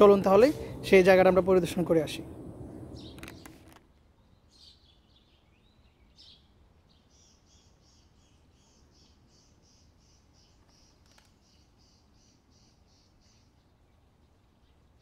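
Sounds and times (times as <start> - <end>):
bird chirping: 2.1 - 15.0.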